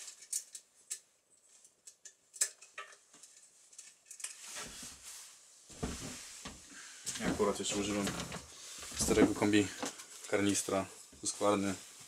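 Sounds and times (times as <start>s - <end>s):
short rustle: 4.3s - 12.0s.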